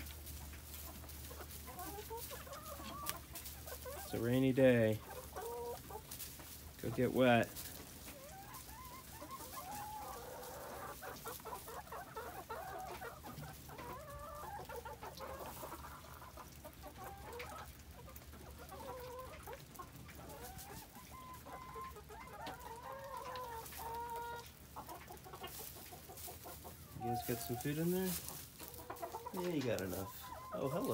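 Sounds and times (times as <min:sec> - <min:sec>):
hens clucking: 0:00.0 - 0:30.9
hens drawn-out calls: 0:08.1 - 0:30.9.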